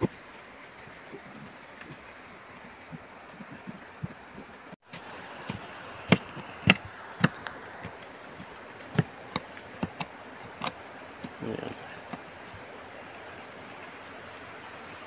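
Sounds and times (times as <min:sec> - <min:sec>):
steady background hiss: 0:00.0 - 0:15.0
hand tool chopping into soil: 0:05.5 - 0:11.4.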